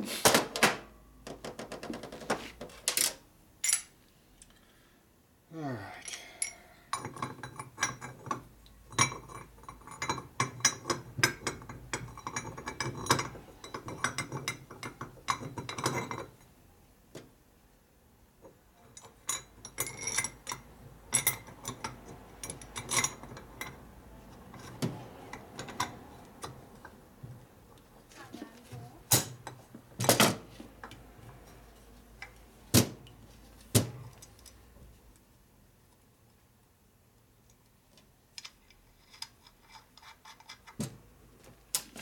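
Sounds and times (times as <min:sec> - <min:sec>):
metal parts clicking and clinking: 0:02.8 - 0:04.5.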